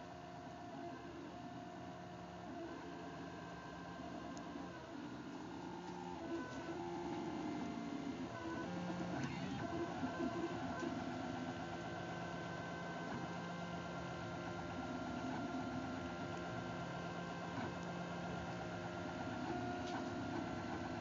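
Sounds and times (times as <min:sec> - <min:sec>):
printer mechanical whine: 0:00.0 - 0:21.0.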